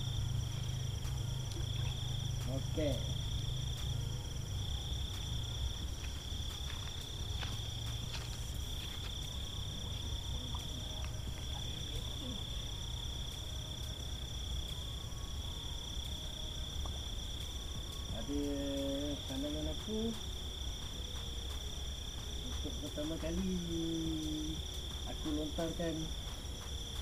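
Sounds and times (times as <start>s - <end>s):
low rumble: 0.0s - 19.6s
insects trilling: 0.0s - 27.0s.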